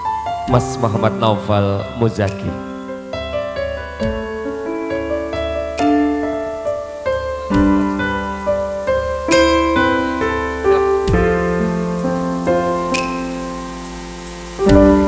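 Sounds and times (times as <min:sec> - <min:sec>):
slow gentle piano melody: 0:00.0 - 0:15.0.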